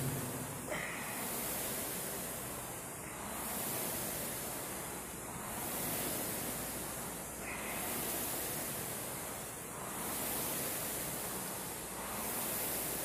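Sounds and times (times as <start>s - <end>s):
rushing hiss: 0.0s - 13.0s.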